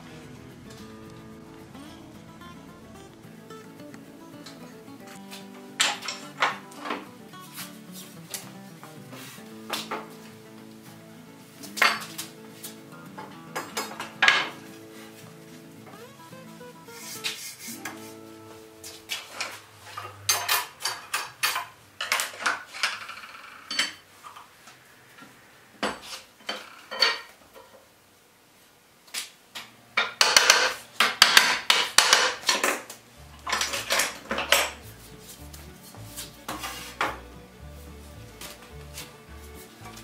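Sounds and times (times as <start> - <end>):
metal clinking and clanking: 4.4 - 7.1, 11.6 - 14.8, 19.2 - 24.0, 25.9 - 27.7, 30.0 - 34.9.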